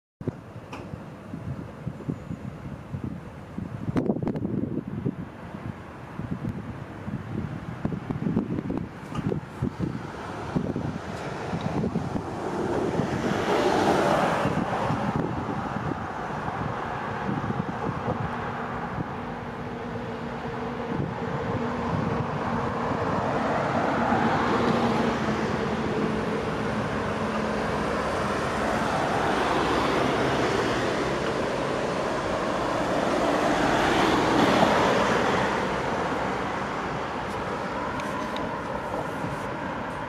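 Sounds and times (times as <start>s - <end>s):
cars driving past: 6.9s - 40.0s.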